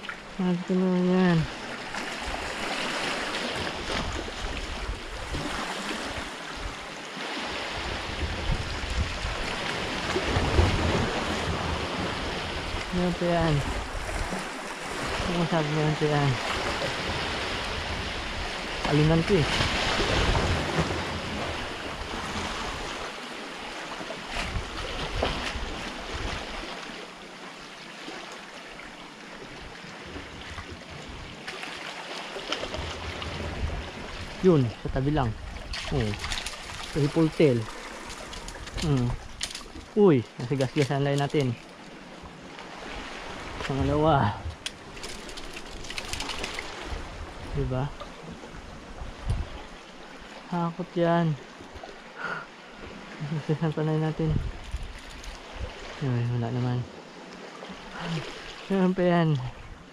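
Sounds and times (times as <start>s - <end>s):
water lapping against rocks: 0.0s - 56.0s, 56.9s - 59.7s
wind rumbling on microphone: 2.2s - 6.9s, 7.5s - 23.1s, 24.2s - 26.7s, 32.6s - 41.6s, 42.2s - 50.2s, 54.0s - 56.4s
water washing against rocks: 34.4s - 41.8s, 43.1s - 47.9s.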